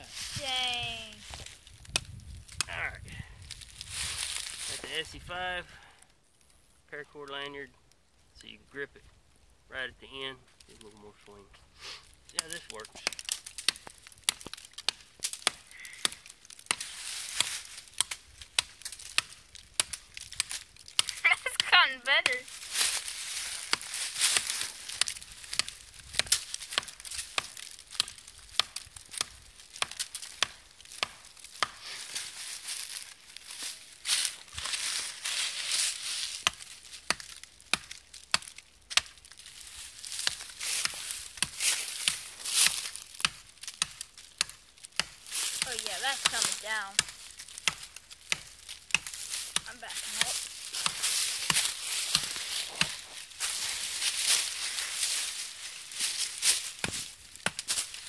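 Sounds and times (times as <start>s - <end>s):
dry leaves rustling underfoot: 0.0s - 5.3s, 10.5s - 58.0s
axe chopping wood: 12.4s - 31.9s, 36.4s - 39.2s, 40.1s - 53.0s, 56.7s - 58.0s.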